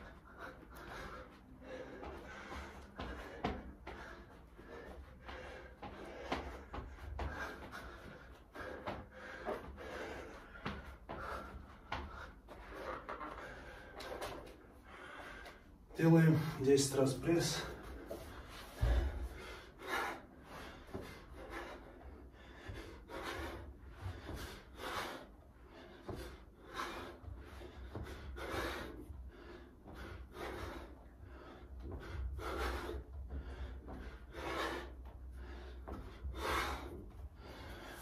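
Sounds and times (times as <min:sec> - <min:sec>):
man breathing out hard: 0:17.6 - 0:38.0.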